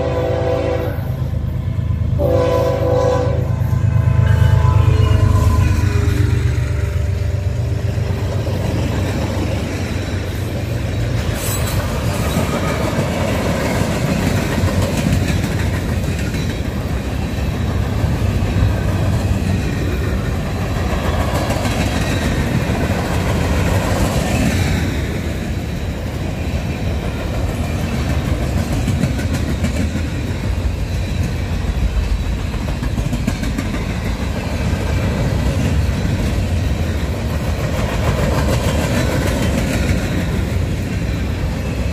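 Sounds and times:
freight train wheels on rail: 0.0s - 41.9s.

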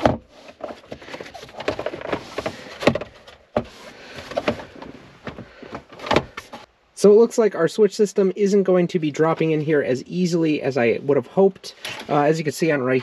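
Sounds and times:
plastic scraping against plastic: 0.0s - 6.7s, 11.7s - 12.3s.

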